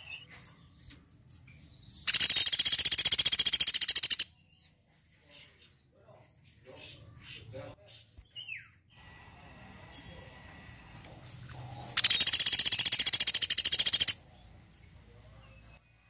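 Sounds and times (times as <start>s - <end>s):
woodpecker rapid high trill: 2.1s - 4.3s, 11.9s - 14.2s.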